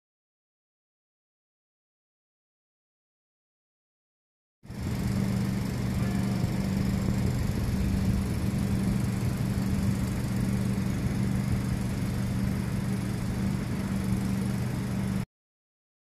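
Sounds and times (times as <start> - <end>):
engine humming: 4.7 - 15.2.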